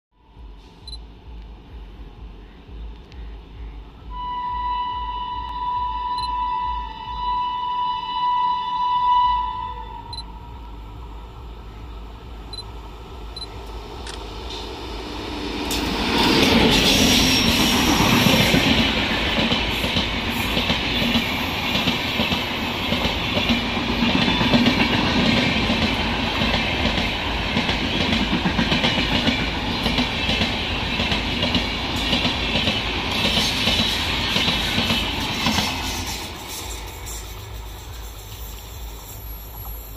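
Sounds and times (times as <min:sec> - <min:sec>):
train wheels on rails: 0:10.1 - 0:39.9.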